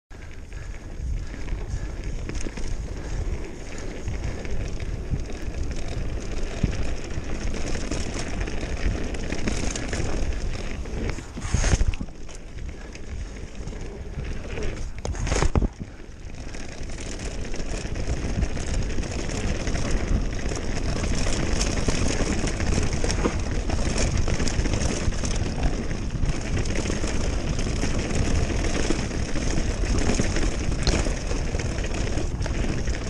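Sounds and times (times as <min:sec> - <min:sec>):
bike tyres crackling over dirt: 0:00.1 - 0:33.0
wind rushing over microphone: 0:00.2 - 0:16.4.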